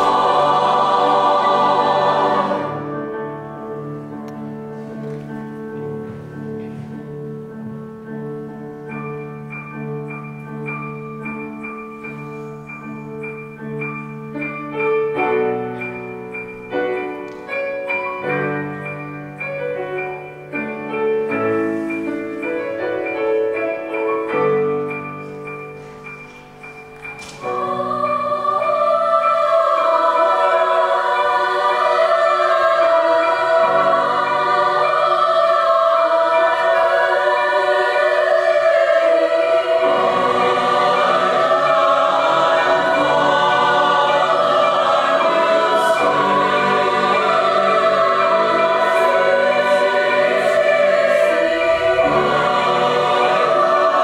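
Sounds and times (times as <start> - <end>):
mixed choir singing: 0.0 - 4.5, 27.1 - 54.0
piano accompaniment: 0.0 - 54.0.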